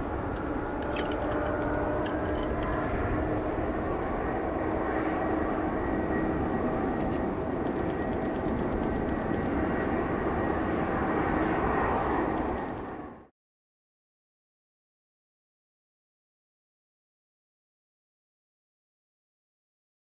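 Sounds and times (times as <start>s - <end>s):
jet engines at takeoff thrust: 0.0s - 13.3s.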